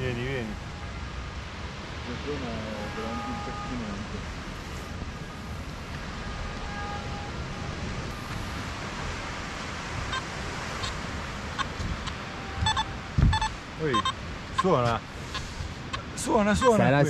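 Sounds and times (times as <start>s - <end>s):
wind: 0.0s - 17.0s
metal detector beeps: 12.6s - 14.7s.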